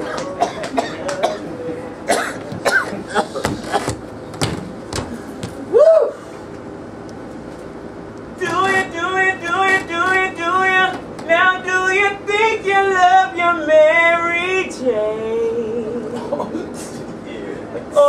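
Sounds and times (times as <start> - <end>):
person singing wordless melody: 8.4 - 16.2.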